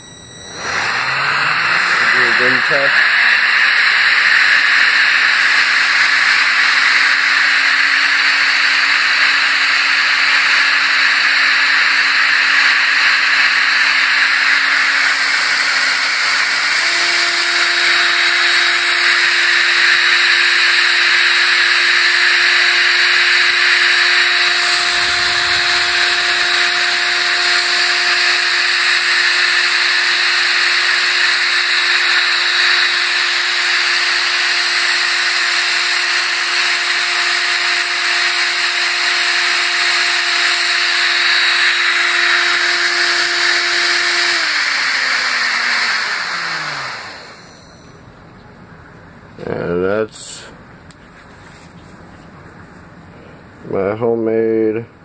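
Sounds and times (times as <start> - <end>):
motor hum: 0.0 - 49.8
electric fan rushing hiss: 23.0 - 30.0.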